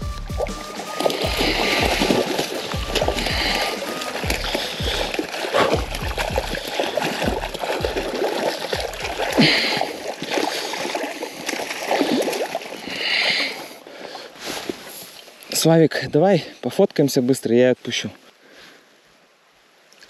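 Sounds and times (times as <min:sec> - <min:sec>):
water splashing and sloshing: 0:00.0 - 0:15.7.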